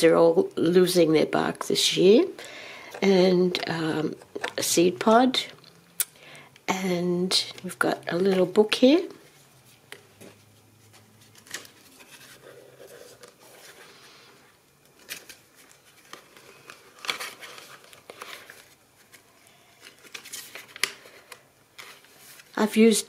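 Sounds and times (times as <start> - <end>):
paper pages rustling: 9.2 - 22.6.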